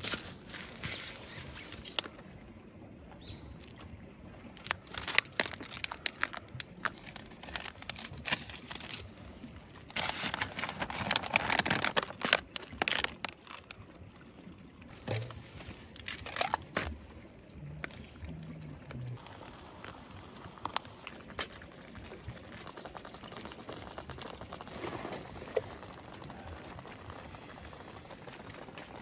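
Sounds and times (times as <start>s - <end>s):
crinkling handling sounds: 4.4s - 13.8s, 14.9s - 17.2s.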